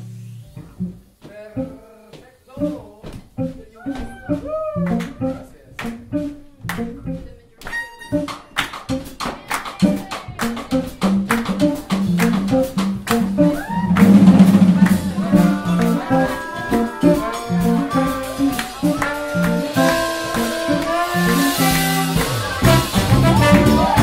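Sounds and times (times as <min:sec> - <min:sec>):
drum kit: 0:00.0 - 0:01.8, 0:07.9 - 0:24.0
electric bass groove: 0:00.0 - 0:01.8, 0:09.8 - 0:24.0
harmonica melody: 0:03.9 - 0:09.2, 0:10.4 - 0:24.0
trombone melody: 0:10.4 - 0:24.0.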